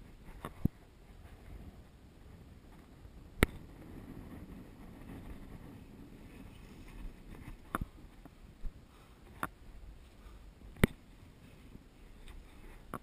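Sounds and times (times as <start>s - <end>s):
wind rustle on microphone: 0.0s - 13.0s.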